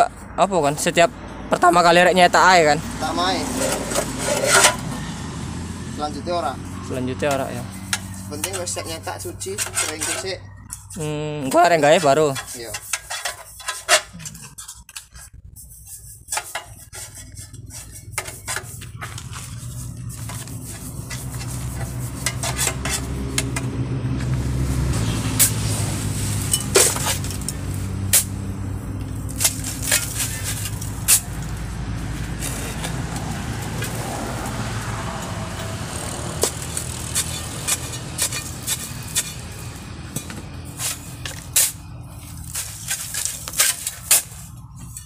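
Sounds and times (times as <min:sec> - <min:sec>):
low engine hum: 0:17.5 - 0:42.9.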